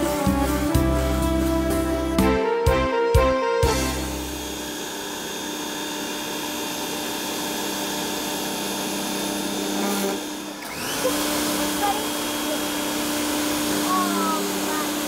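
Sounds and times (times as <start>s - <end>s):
background music: 0.0s - 4.6s
steam cleaner hissing: 10.7s - 15.0s.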